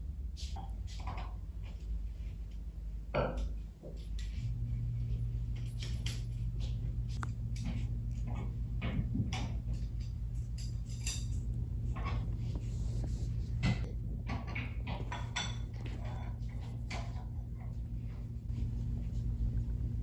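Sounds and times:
steady low hum: 0:00.0 - 0:20.0
light clicks and clinks: 0:03.9 - 0:08.4, 0:09.3 - 0:12.2.

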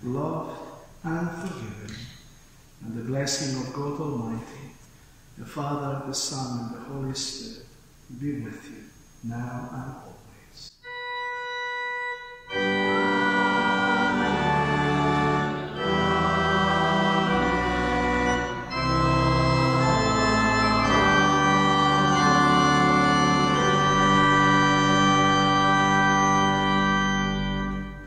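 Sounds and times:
church organ slow chords: 0:00.0 - 0:02.2, 0:10.8 - 0:28.0.

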